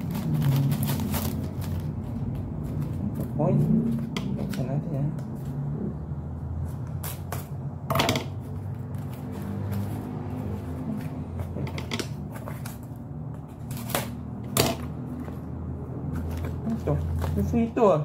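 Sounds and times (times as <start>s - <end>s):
paper and cardboard rustling: 0.0s - 4.6s.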